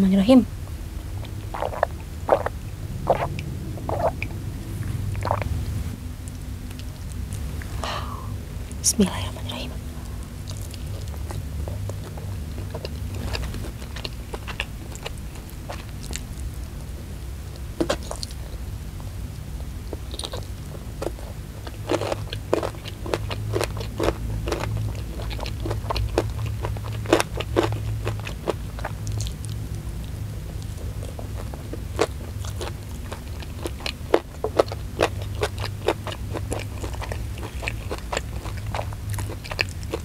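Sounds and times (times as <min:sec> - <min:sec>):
steady low hum: 0:00.0 - 0:40.0
crunching fried chicken: 0:01.0 - 0:05.6, 0:10.0 - 0:40.0
wet chewing: 0:01.0 - 0:05.6, 0:06.2 - 0:07.8, 0:10.0 - 0:18.6, 0:19.9 - 0:40.0.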